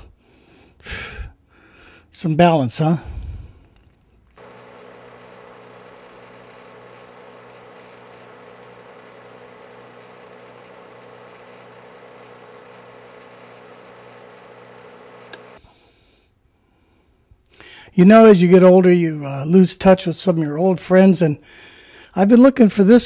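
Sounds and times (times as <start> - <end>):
electrical hum with hiss: 4.4 - 15.6.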